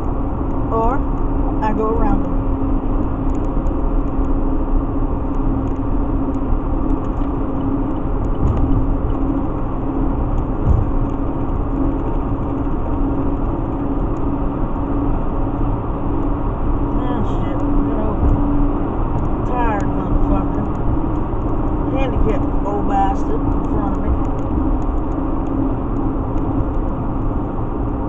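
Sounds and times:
low engine hum: 0.0s - 28.0s.

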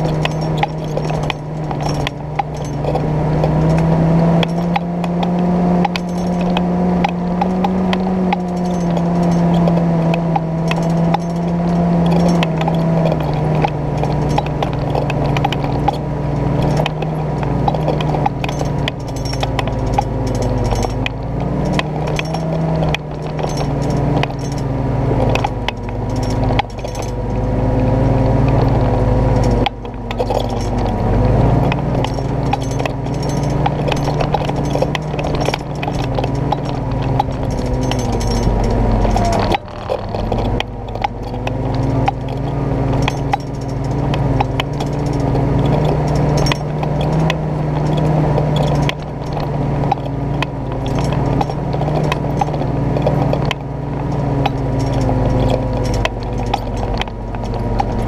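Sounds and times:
clanks and rattles: 0.0s - 58.0s
jeep engine running slowly: 0.0s - 58.0s.

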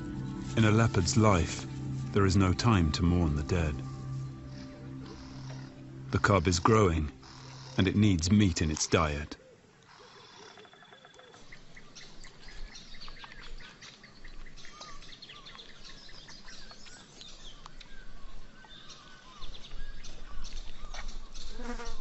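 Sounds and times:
low rumbling noise: 0.0s - 8.8s
birds chirping: 0.0s - 22.0s.

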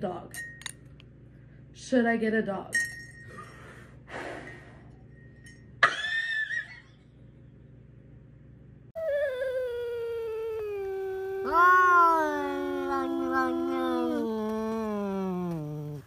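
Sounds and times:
cats yowling: 10.0s - 16.0s.

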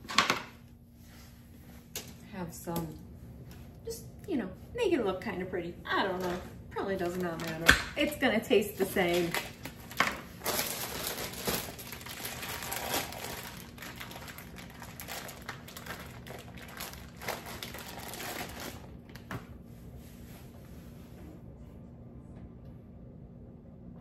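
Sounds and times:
plastic packaging crinkling: 7.0s - 7.7s, 8.8s - 19.3s.

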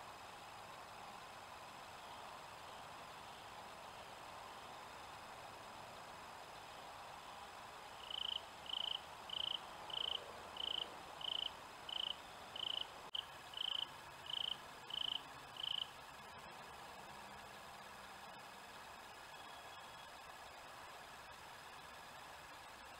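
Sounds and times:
cricket chirping: 8.0s - 16.6s.

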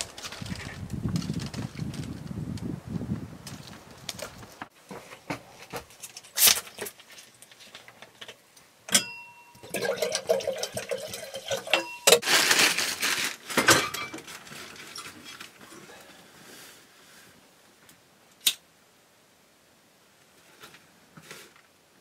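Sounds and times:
metal pots clinking: 8.9s - 12.2s, 13.6s - 14.3s.

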